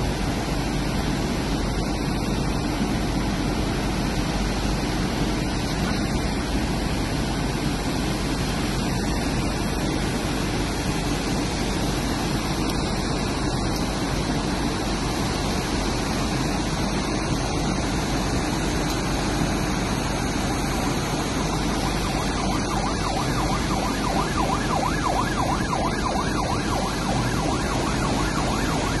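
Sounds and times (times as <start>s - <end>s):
torrential rain and floodwater: 0.0s - 29.0s
yelping emergency siren: 19.4s - 29.0s.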